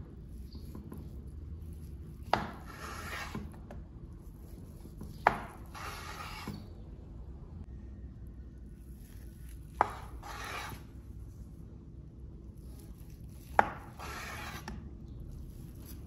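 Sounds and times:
blade rasping against board: 0:02.4 - 0:03.5, 0:05.3 - 0:06.6, 0:09.8 - 0:10.9, 0:13.6 - 0:14.8.

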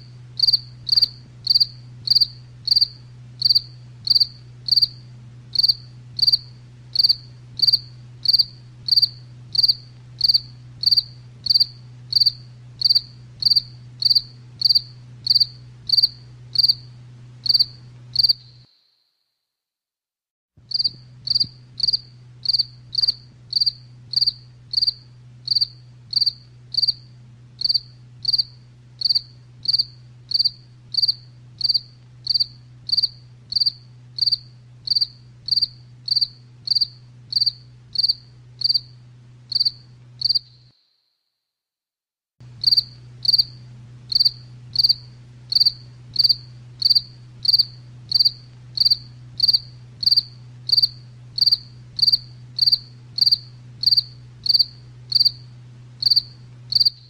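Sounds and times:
steady low hum: 0:00.0 - 0:18.7, 0:20.6 - 0:40.7, 0:42.4 - 0:57.0
cricket chirping: 0:00.0 - 0:19.2, 0:20.7 - 0:41.2, 0:42.6 - 0:57.0.

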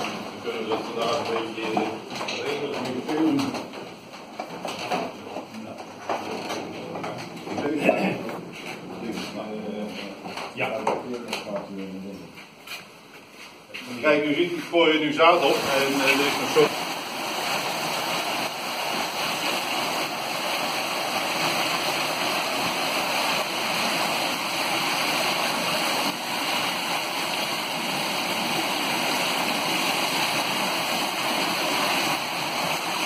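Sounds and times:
water splashing off waterwheel: 0:00.0 - 0:03.3, 0:15.2 - 0:33.0.

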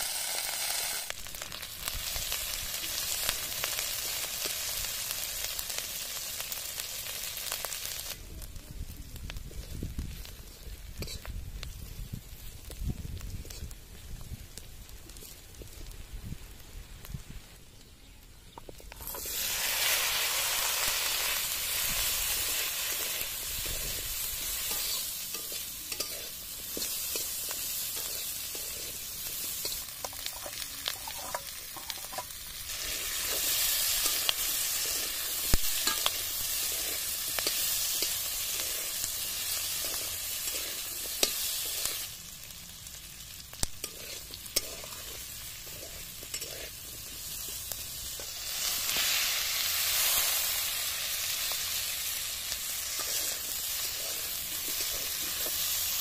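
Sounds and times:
vegetables sizzling in hot oil: 0:00.0 - 0:56.0
metal spatula scraping: 0:11.0 - 0:11.3, 0:21.2 - 0:42.0, 0:43.8 - 0:50.3, 0:52.6 - 0:56.0.

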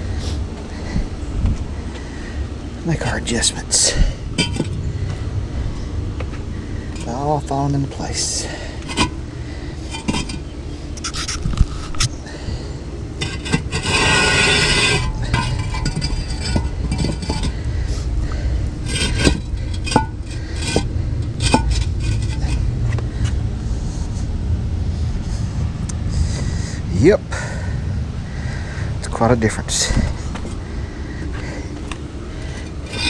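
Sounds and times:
concrete blocks scraping: 0:04.4 - 0:04.8, 0:08.4 - 0:09.2, 0:09.8 - 0:12.1, 0:13.2 - 0:17.6, 0:18.8 - 0:22.7, 0:32.4 - 0:33.0
concrete blocks knocking together: 0:13.2 - 0:17.5, 0:18.9 - 0:22.5.

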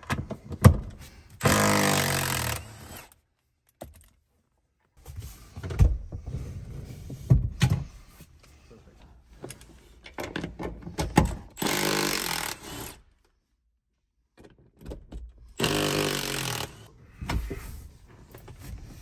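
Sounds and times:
impact driver bursts: 0:01.4 - 0:03.1, 0:11.5 - 0:13.0, 0:15.6 - 0:16.9.

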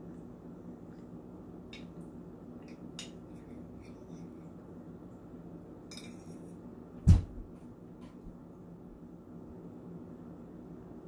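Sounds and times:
loud deep thump: 0:07.0 - 0:07.5.

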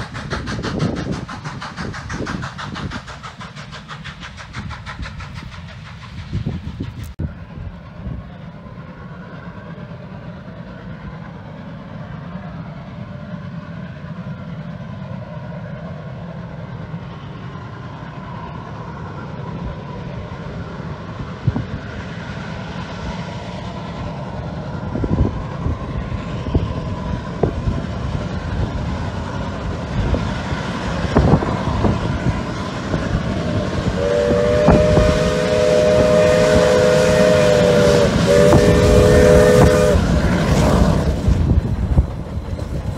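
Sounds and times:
steam locomotive running: 0:00.0 - 0:42.9
steam chime whistle: 0:33.9 - 0:42.8.

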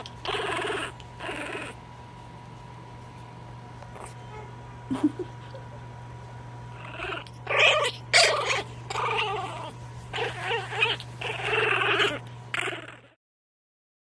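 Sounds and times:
puppy squeaky growls and whines: 0:00.0 - 0:01.8, 0:03.9 - 0:05.2, 0:06.7 - 0:13.2.

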